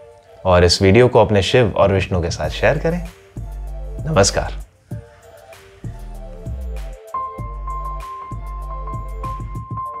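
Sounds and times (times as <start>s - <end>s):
beat with deep bass: 2.4s - 5.1s, 5.8s - 9.9s.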